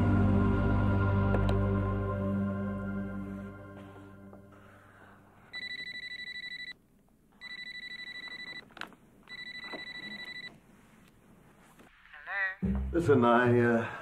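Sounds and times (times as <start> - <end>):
telephone ringing: 5.5 - 6.8, 7.4 - 10.6.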